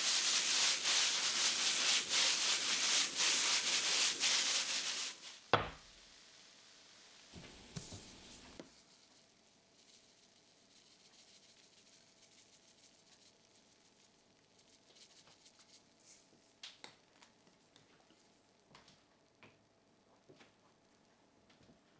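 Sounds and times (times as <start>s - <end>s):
seeds sprinkling: 0.0s - 5.4s, 7.7s - 15.8s
jar knocking on wooden table: 5.6s - 5.8s.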